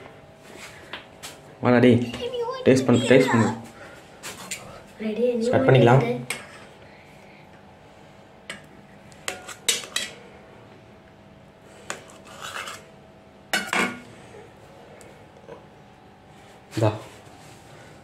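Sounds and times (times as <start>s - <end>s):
knife scraping on steel plate: 9.3s - 10.2s, 11.9s - 12.9s.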